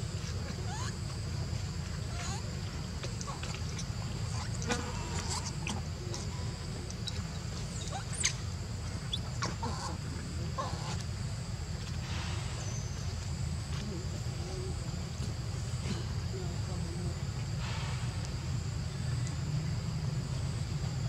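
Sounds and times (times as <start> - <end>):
young monkeys squeaking and chirping: 0.6 - 1.0, 2.1 - 2.5, 7.7 - 8.4.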